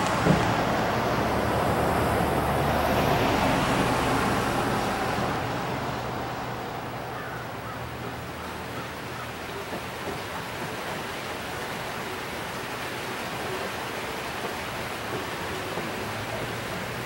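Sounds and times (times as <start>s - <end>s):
car driving past: 0.0s - 6.8s.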